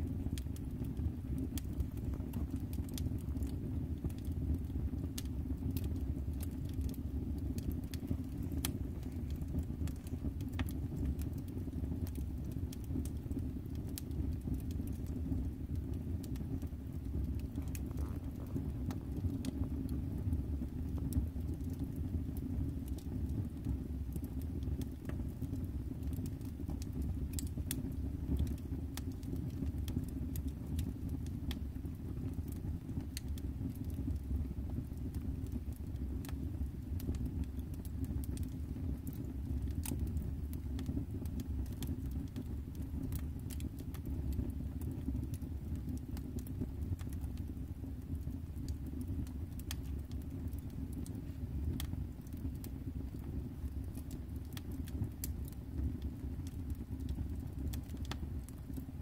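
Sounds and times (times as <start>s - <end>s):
steady low rumble: 0.0s - 30.4s
wood fire crackling and popping: 0.0s - 59.0s.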